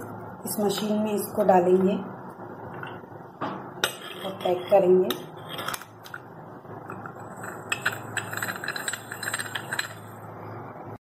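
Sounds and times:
metal-on-metal scraping: 3.8s - 6.2s, 6.8s - 10.3s.

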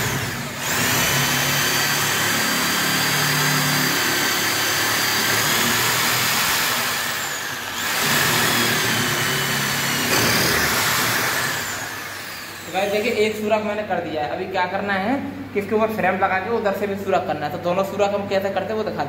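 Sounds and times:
electric drill boring through wood: 0.0s - 13.2s.

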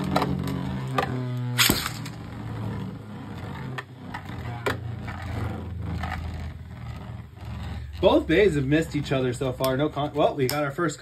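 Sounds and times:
spinning tops whirring: 0.0s - 11.0s
spinning top launched with clack: 0.9s - 2.2s.

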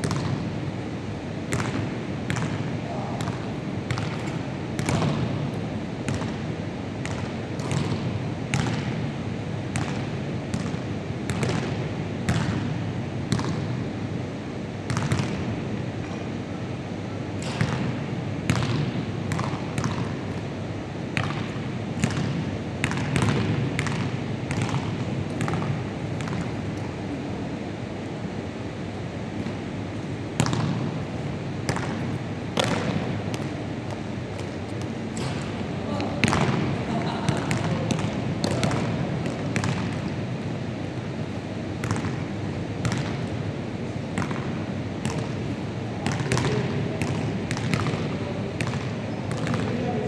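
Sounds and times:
basketballs bouncing on wooden floor: 0.0s - 0.5s, 1.5s - 9.1s, 9.7s - 12.7s, 13.3s - 13.7s, 14.9s - 16.2s, 17.4s - 20.5s, 21.2s - 26.9s, 30.4s - 31.0s, 31.6s - 40.2s, 41.8s - 43.3s, 44.1s - 50.0s.

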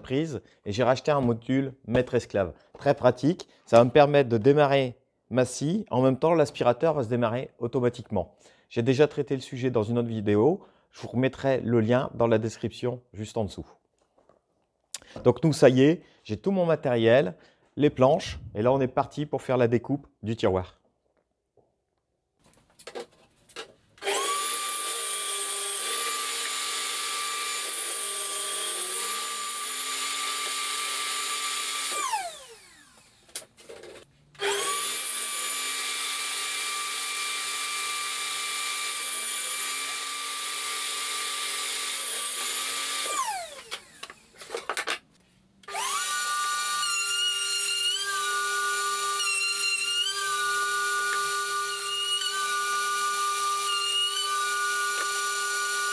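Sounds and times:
router running: 24.0s - 44.8s, 45.6s - 55.9s
table saw whining: 24.0s - 45.0s, 45.6s - 55.9s.

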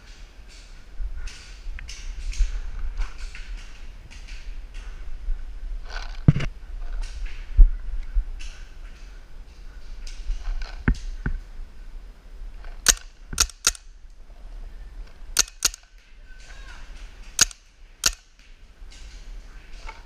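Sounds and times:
paintball marker shots: 17.4s - 18.4s.

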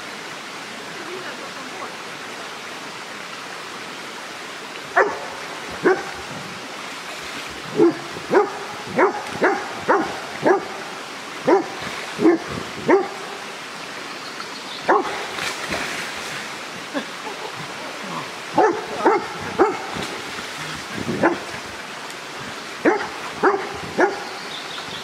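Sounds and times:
stream rushing: 0.0s - 25.0s
dog barking: 5.0s - 6.2s, 7.7s - 10.8s, 11.4s - 13.3s, 14.9s - 15.2s, 18.6s - 19.9s, 21.2s - 21.4s, 22.8s - 24.3s.

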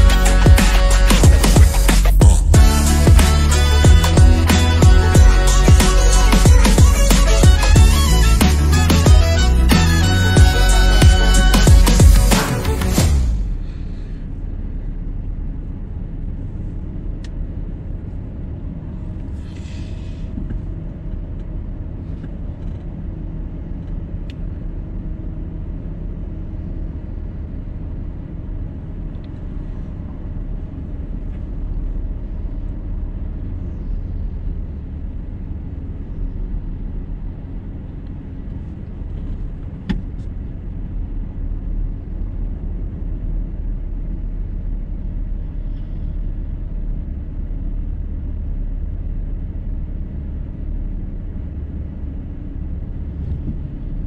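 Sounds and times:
car tyres and engine rumble: 0.0s - 54.0s
short hiss: 19.4s - 20.3s.

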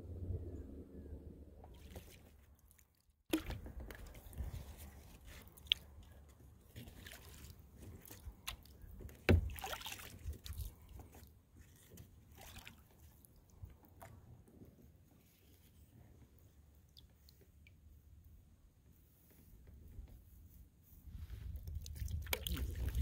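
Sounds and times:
paddle splashing water: 1.6s - 5.8s, 6.7s - 13.2s.

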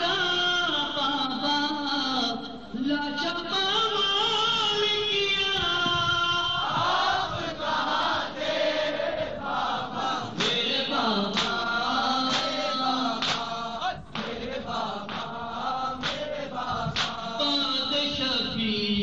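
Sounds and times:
man chanting into a microphone: 0.0s - 7.4s, 10.2s - 19.0s
group of voices chanting: 6.6s - 17.6s.

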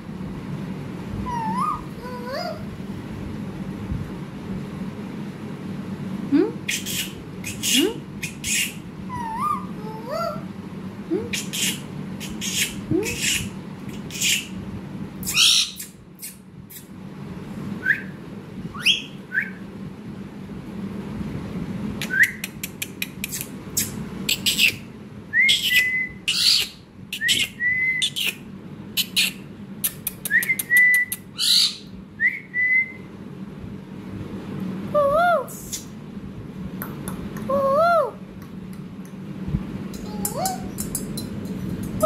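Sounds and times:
parakeet whistling: 1.3s - 1.9s, 6.7s - 10.4s, 15.2s - 16.4s, 17.8s - 19.6s, 22.1s - 22.4s, 25.4s - 28.4s, 30.3s - 33.1s.

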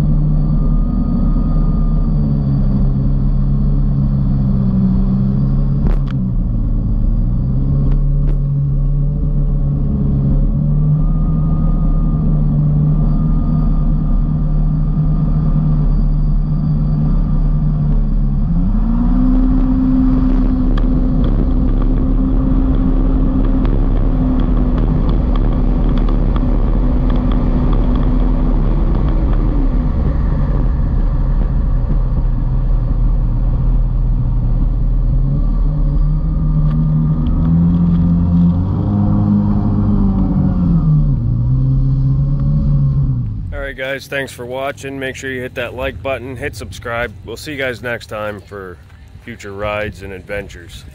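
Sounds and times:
jet ski engine running: 0.0s - 50.9s
wind: 0.0s - 50.9s.

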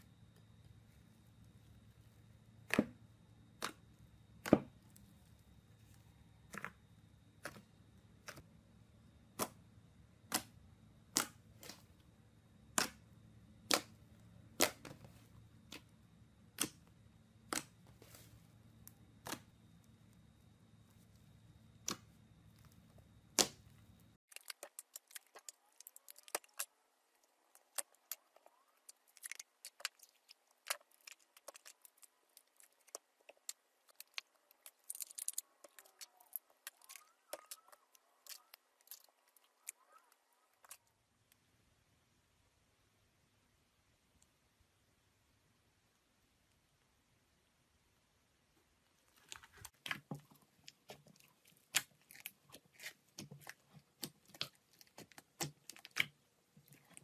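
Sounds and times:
foam bead slime crackling: 13.6s - 40.9s, 49.0s - 57.0s.

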